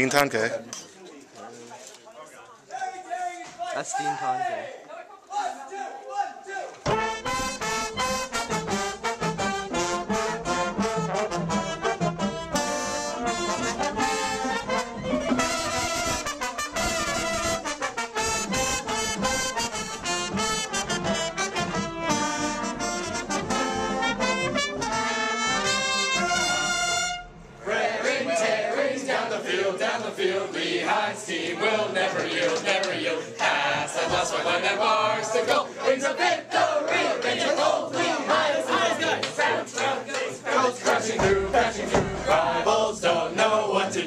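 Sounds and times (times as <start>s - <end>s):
group of voices singing: 6.9s - 16.2s, 27.6s - 44.0s
marching band brass and woodwinds: 6.9s - 27.9s.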